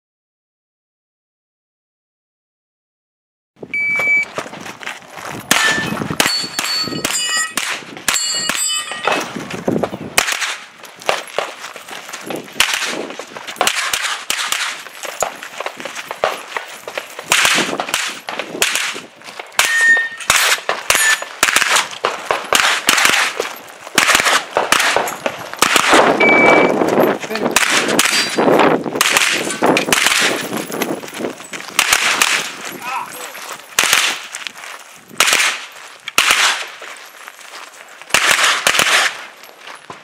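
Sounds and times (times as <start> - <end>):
shot timer beep: 3.7 - 4.3, 19.7 - 20.3, 26.2 - 26.8
gunshots: 5.5 - 9.3, 10.1 - 11.6, 12.5 - 30.6, 31.7 - 32.7, 33.8 - 34.3, 35.2 - 36.8, 38.1 - 39.3
steel targets ringing: 5.5 - 9.3, 19.6 - 21.3, 26.2 - 26.7, 28.0 - 28.5.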